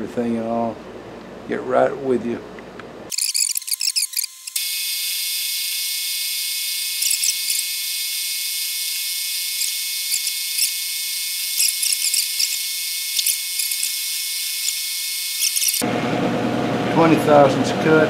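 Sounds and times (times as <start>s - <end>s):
cutter squealing in metal: 3.1s - 15.8s
milling machine spindle whine: 3.1s - 15.9s.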